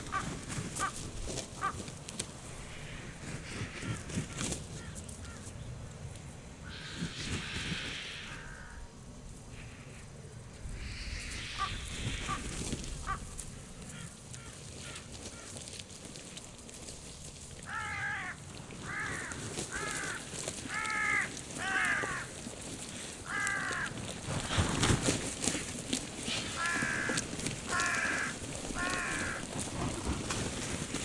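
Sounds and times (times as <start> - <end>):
harsh crow-like caws: 1.6 - 1.8, 2.6 - 5.5, 6.6 - 10.1, 10.8 - 15.7, 17.6 - 24.2, 26.4 - 30.0
low rumbling noise: 5.6 - 14.4.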